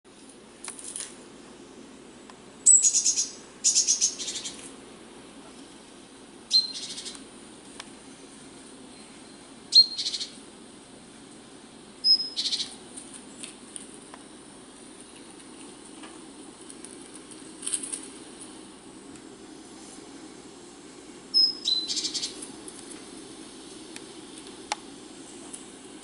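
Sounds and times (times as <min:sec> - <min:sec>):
songbirds chirping in trills: 0:01.4 - 0:13.7, 0:20.8 - 0:24.4.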